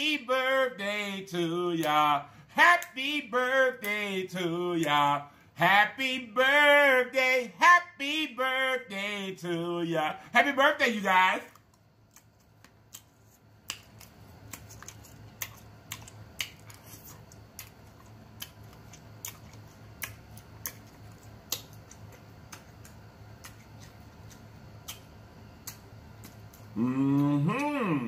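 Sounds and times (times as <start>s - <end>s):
low steady hum: 0.0s - 28.0s
chewing and lip smacking: 11.5s - 27.7s.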